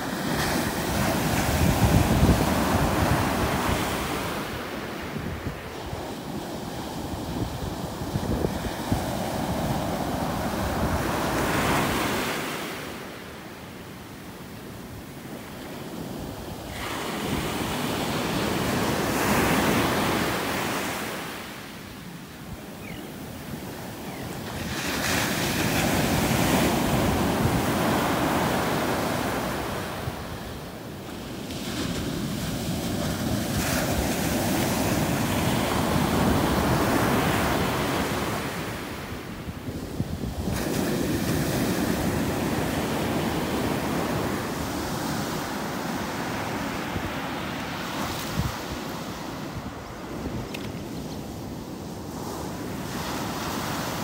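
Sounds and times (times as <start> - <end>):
ocean surf breaking on beach: 0.0 - 54.0
wind rumbling on microphone: 0.8 - 12.0.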